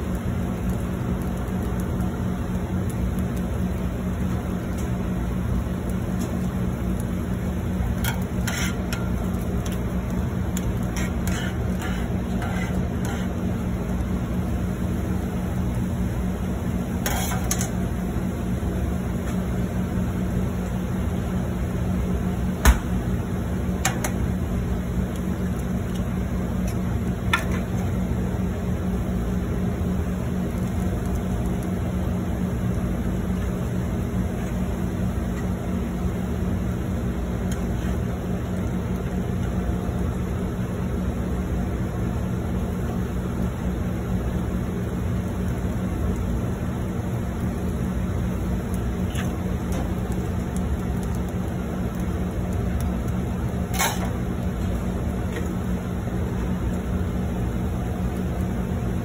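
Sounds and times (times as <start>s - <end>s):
sharp clicks and light clatters: 0.0s - 3.5s, 8.0s - 13.3s, 48.7s - 55.6s
low mechanical hum: 0.0s - 59.0s.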